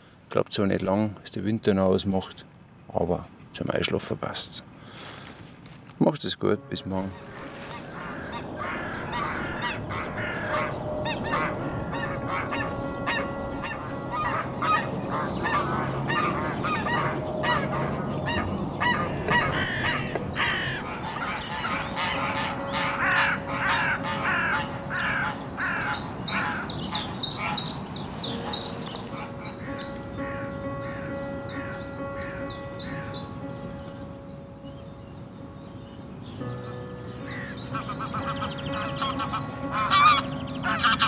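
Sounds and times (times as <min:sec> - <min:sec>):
geese honking: 0:06.6 - 0:33.6, 0:37.2 - 0:41.0
other bird calls: 0:07.0 - 0:34.1, 0:36.3 - 0:41.0
songbird high falling chirps: 0:25.8 - 0:34.0.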